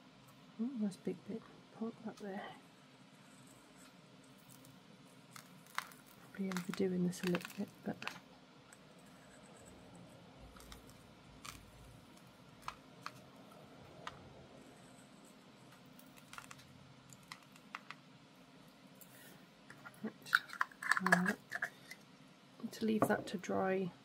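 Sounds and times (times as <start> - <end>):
salt crystals clicking on paper: 4.4 - 8.2, 10.5 - 13.3, 16.0 - 18.0.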